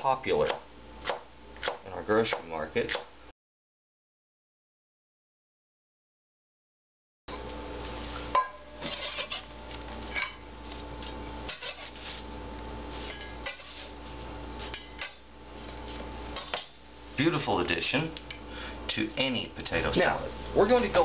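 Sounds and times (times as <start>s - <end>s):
steady background hum: 7.3s - 21.0s
knife scraping cutting board: 8.8s - 9.6s, 11.5s - 12.3s, 13.0s - 14.0s.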